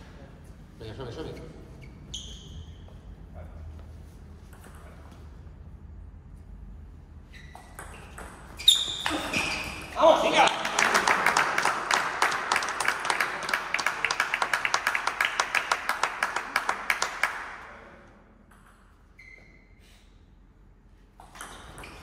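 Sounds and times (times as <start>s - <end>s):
crowd clapping: 10.4s - 17.8s.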